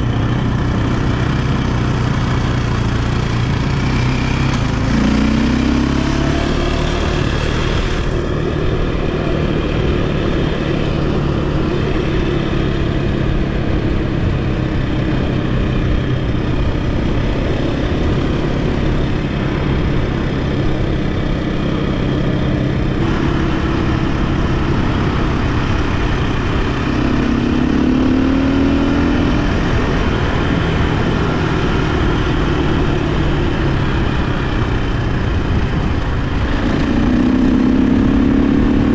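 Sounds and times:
dirt bike engine running: 0.0s - 38.9s.

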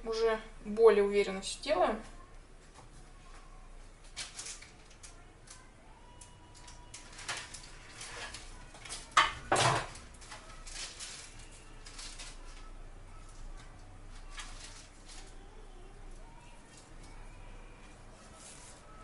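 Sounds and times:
utensils clattering: 6.6s - 12.7s.

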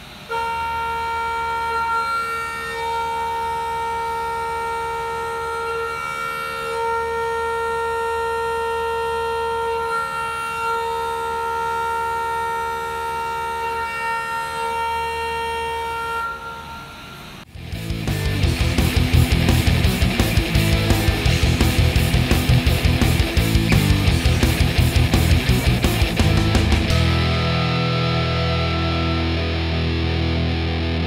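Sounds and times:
low machine hum: 16.4s - 31.0s.

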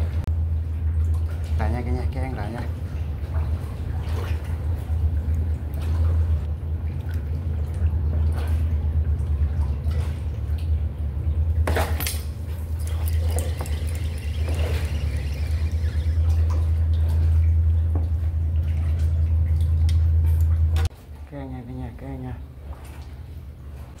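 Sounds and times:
steady low hum: 0.0s - 24.0s
water lapping against concrete: 0.0s - 24.0s
small water drips: 2.8s - 20.9s
brief splash: 11.6s - 17.5s.

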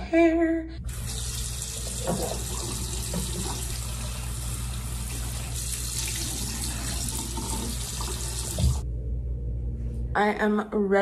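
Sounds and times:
faucet running into sink: 0.9s - 8.8s.

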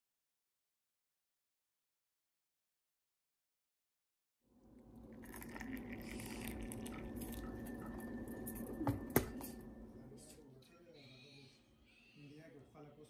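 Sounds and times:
tea pouring into glass: 4.7s - 9.6s.

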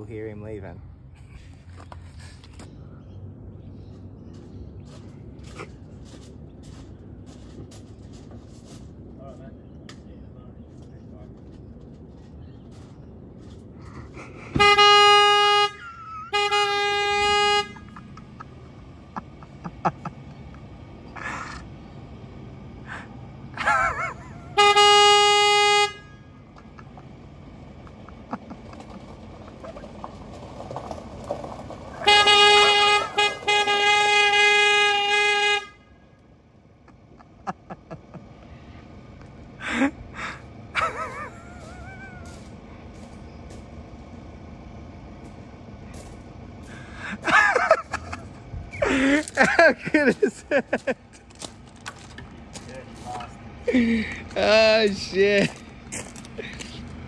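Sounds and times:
horn honking: 14.3s - 21.6s, 22.8s - 37.7s, 46.7s - 51.0s.

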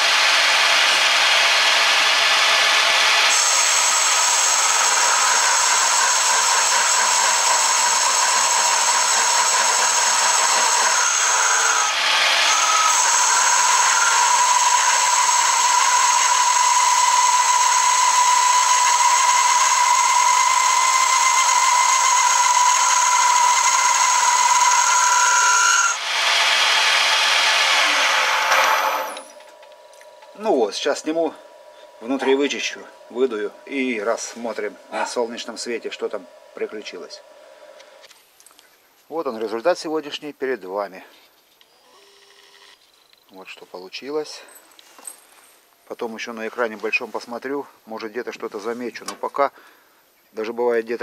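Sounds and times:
metal lathe cutting with whine: 0.0s - 29.4s, 30.3s - 37.3s.

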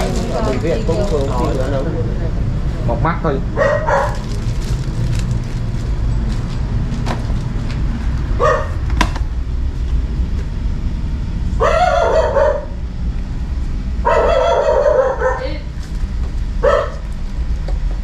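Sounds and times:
steady low hum: 0.0s - 18.0s
dog barking: 3.6s - 4.2s, 8.4s - 8.8s, 11.6s - 12.8s, 14.0s - 15.7s, 16.6s - 17.0s.

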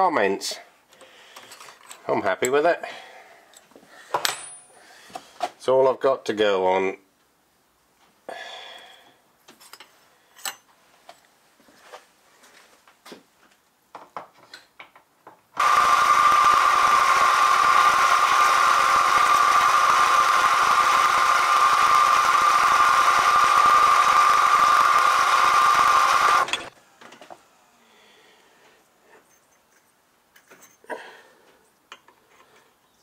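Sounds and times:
milling machine motor whining: 15.6s - 26.7s.

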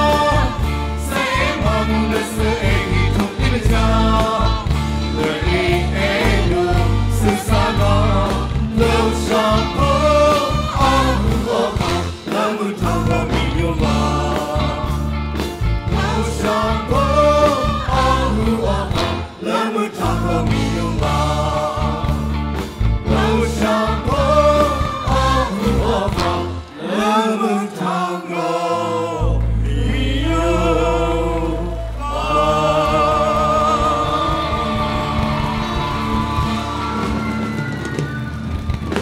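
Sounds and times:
band with keyboard and drums: 0.0s - 26.8s, 29.3s - 39.0s
group singing in unison: 0.0s - 37.5s.

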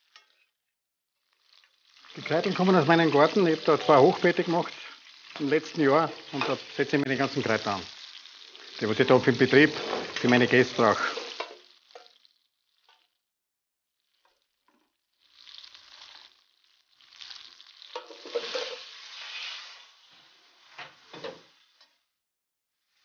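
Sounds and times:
sharp crackles: 1.2s - 12.4s, 15.2s - 18.0s
meat sizzling in oil: 1.2s - 13.2s, 14.0s - 22.2s.

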